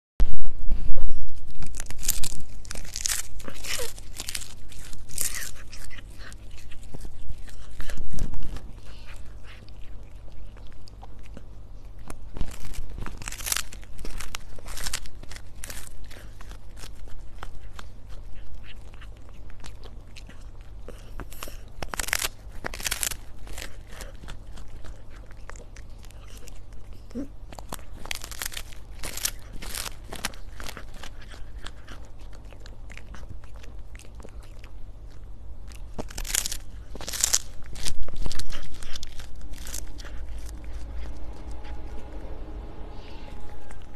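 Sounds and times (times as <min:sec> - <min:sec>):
cat crunching dried fish: 0:00.4 - 0:43.9.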